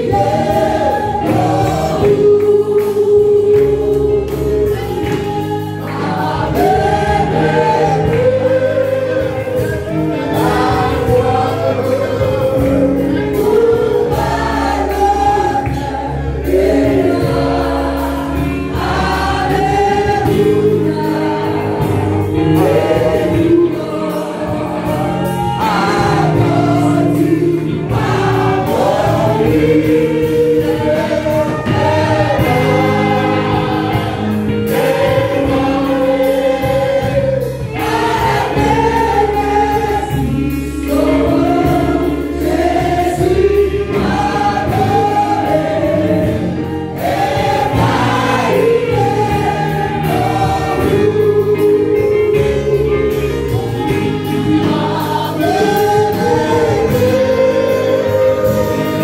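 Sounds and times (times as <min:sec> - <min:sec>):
congregation singing a hymn: 0:00.0 - 0:59.0
woman singing into microphone: 0:47.8 - 0:59.0.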